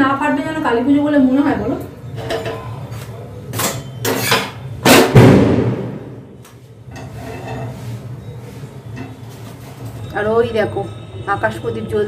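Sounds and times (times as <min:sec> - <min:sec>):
firecrackers banging: 0:04.8 - 0:06.4
echo of bang: 0:04.9 - 0:06.4.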